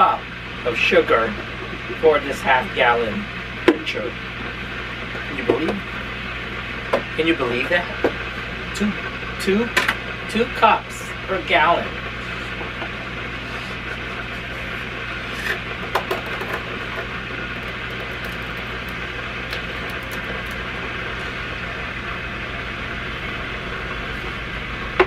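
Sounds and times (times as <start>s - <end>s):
steady mechanical hum: 0.0s - 25.0s
plastic scoop scraping sugar: 14.3s - 20.6s.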